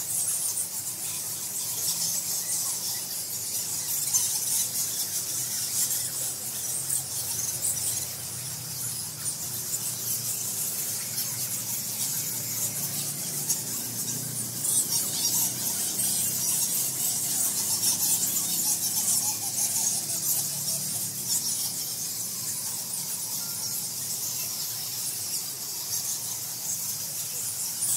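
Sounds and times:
bats squeaking and chittering: 0.0s - 27.9s.

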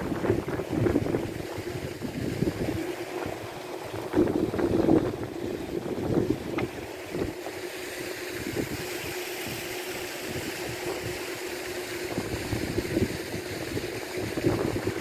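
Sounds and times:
wind gusting on microphone: 0.0s - 7.6s, 8.3s - 15.0s
paddlewheel aerator humming: 0.0s - 15.0s.

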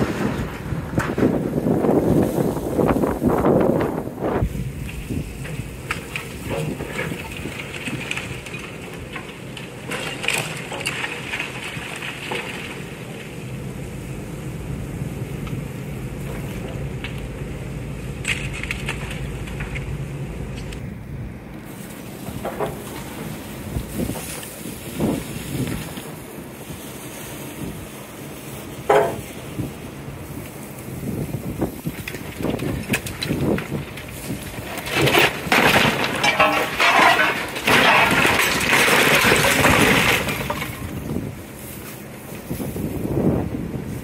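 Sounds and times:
wind on microphone: 0.0s - 5.4s, 23.6s - 26.0s, 29.5s - 34.6s, 42.4s - 44.0s
demolition debris clattering: 0.0s - 43.9s
excavator engine running: 0.0s - 44.0s.

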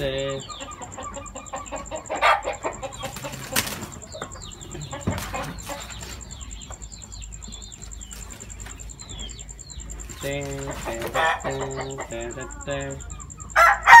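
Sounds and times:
rooster clucking: 0.0s - 14.0s
wing flapping and body strikes: 3.2s - 4.0s.

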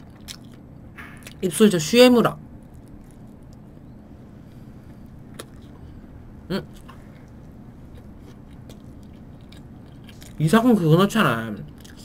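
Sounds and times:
person chewing toast: 0.0s - 1.4s, 2.5s - 3.8s, 4.6s - 6.0s, 6.6s - 10.6s, 11.6s - 12.0s
low background hum: 0.0s - 12.0s.

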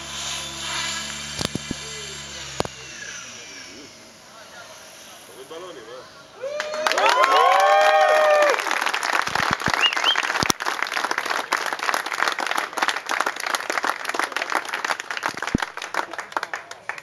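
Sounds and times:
crowd clapping: 6.5s - 17.0s.

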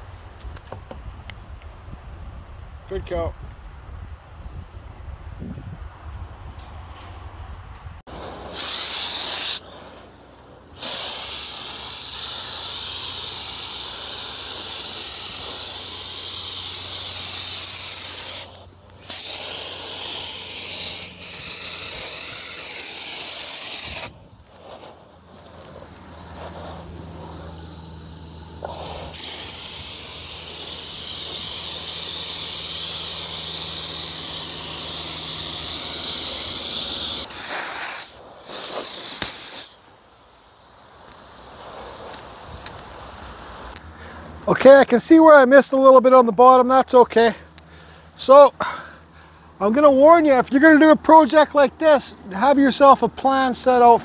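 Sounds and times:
spray gun hissing: 8.1s - 43.8s.

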